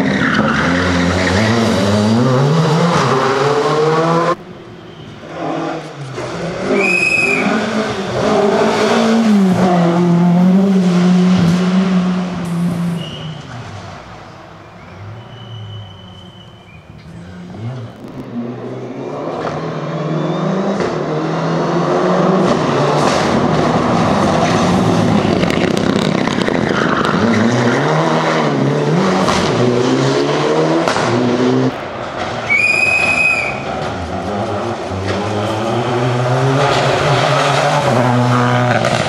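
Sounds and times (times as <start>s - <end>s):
rally car engine revving: 0.0s - 4.4s, 5.2s - 14.3s, 17.0s - 39.0s
high squeal: 6.7s - 7.6s, 12.9s - 13.6s, 14.6s - 17.6s, 32.5s - 33.7s.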